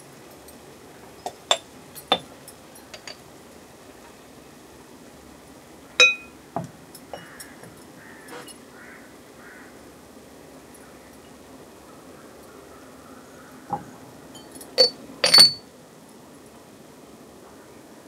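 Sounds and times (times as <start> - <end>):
spoon clinking against glass jars: 1.3 - 3.2, 6.0 - 6.4, 14.4 - 15.6
ringing clink on metal pot: 2.8 - 3.2, 6.0 - 6.4, 14.3 - 15.7.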